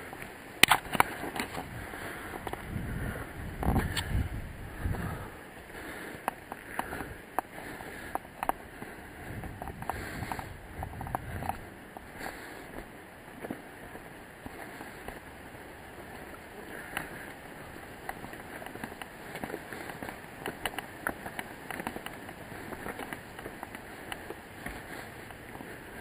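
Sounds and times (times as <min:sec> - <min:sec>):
footsteps crunching on stones: 0:00.1 - 0:26.0.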